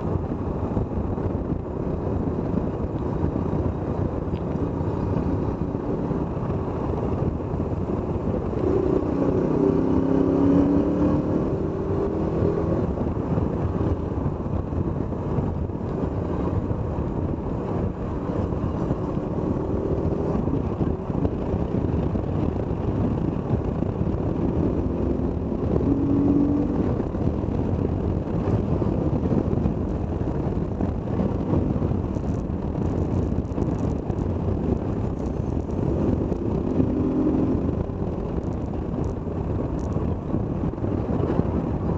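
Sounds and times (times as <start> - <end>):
motorcycle engine running: 0.0 - 41.9
wind and road noise: 0.0 - 41.9.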